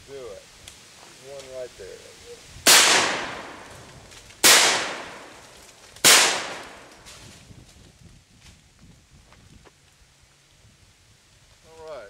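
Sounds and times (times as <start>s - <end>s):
shotgun blasts: 2.7s - 7.1s.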